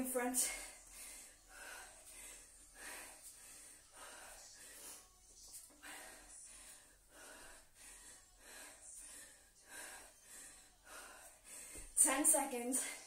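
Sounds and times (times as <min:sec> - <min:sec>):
woman breathing hard: 0:00.4 - 0:12.0.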